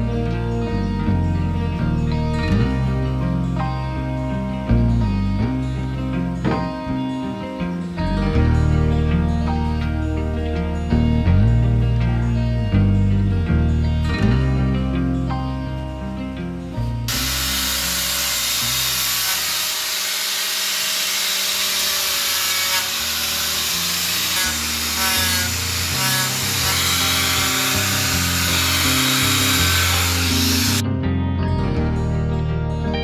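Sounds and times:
background music: 0.0 - 33.0
power sander grinding wood: 17.1 - 30.8.

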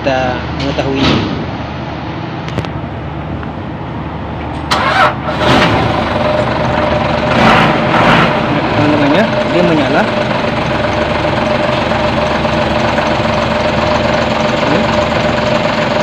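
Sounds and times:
diesel engine running: 0.0 - 16.0
starter motor cranking: 4.7 - 6.2.

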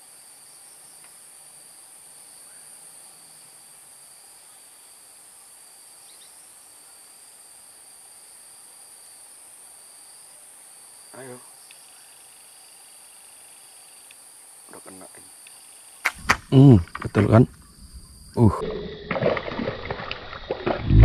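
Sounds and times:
insects shrill chorus: 5.9 - 7.3, 8.2 - 20.5.

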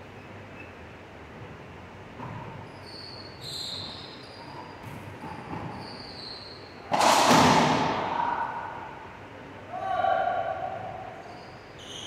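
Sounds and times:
sneakers squeaking on hardwood: 2.2 - 6.7
racquet striking ball: 6.8 - 8.6.

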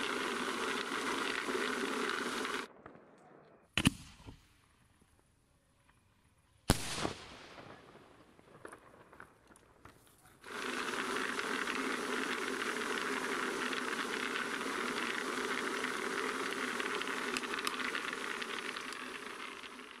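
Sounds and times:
rolling drum hissing and rattling: 0.0 - 2.7, 10.4 - 20.0.

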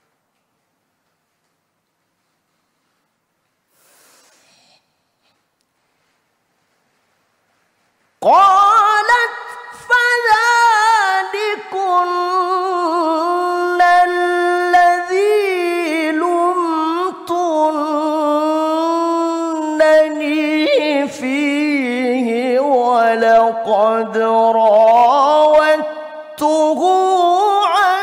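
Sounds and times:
man chanting into a microphone: 8.2 - 28.0.

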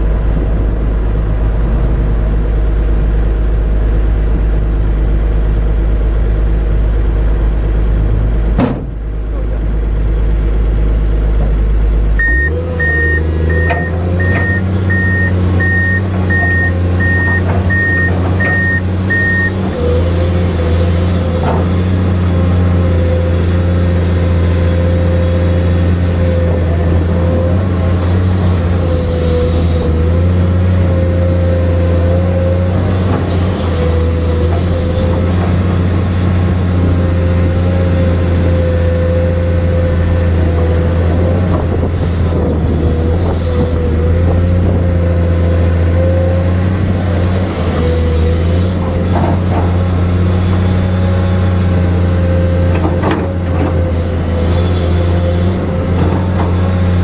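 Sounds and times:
excavator diesel engine running: 0.0 - 57.0
short alarm beeps: 12.2 - 19.5.

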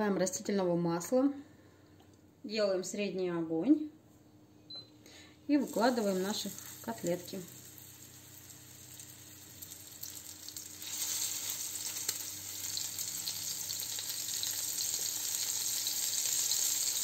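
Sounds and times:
fish patties sizzling in oil: 5.6 - 17.0.

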